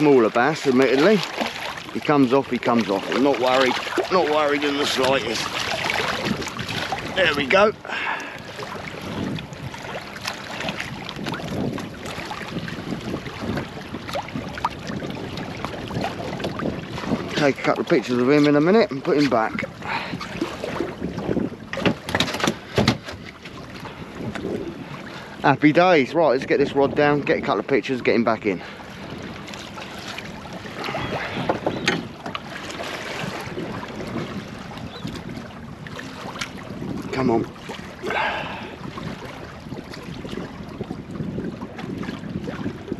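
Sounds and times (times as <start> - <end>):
water lapping against boat: 0.0 - 42.9
wind on microphone: 0.0 - 42.9
sharp knocks and clatters: 21.8 - 23.2.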